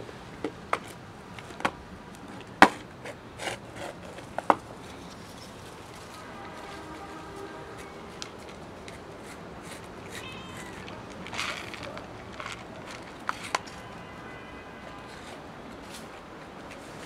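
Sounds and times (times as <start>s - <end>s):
cats meowing: 9.7s - 15.1s.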